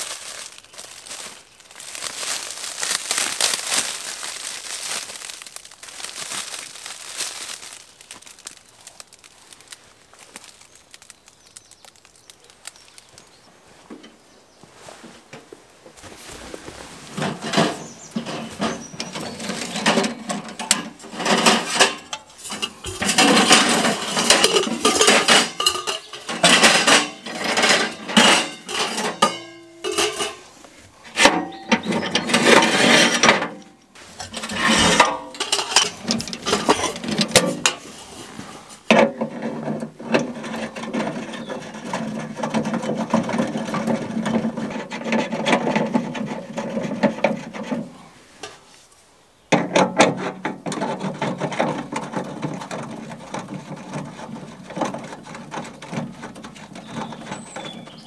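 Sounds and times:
sheet-metal stove pipes clanking: 17.1s - 48.6s, 49.5s - 58.0s.

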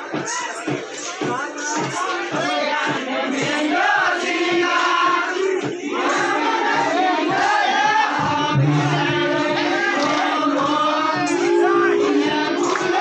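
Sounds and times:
crowd singing and shouting: 0.0s - 13.0s
music with steady drone: 8.2s - 13.0s.

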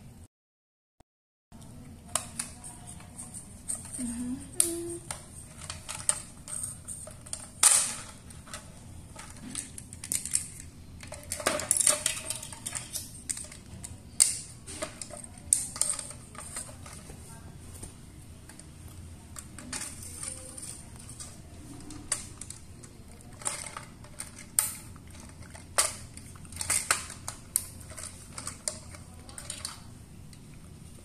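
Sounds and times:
plastic toy pieces clicking: 4.6s - 17.0s, 19.4s - 29.9s.

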